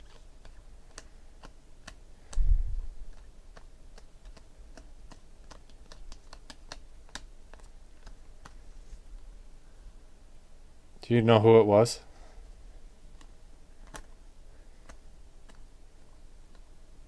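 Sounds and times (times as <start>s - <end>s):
cards clicking against each other: 0.0s - 8.6s, 13.2s - 14.2s, 14.8s - 15.7s.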